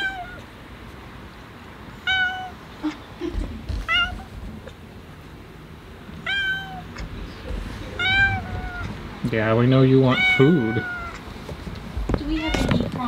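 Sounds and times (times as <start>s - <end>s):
cat meowing: 0.0s - 0.5s, 2.0s - 3.0s, 3.8s - 4.3s, 6.2s - 7.1s, 8.0s - 9.2s, 9.8s - 11.3s, 12.2s - 13.0s.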